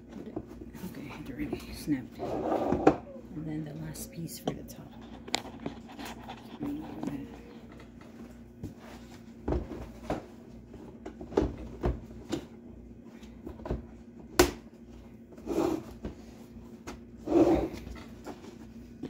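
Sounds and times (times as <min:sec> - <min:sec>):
plastic scraping: 0:01.5 - 0:08.0.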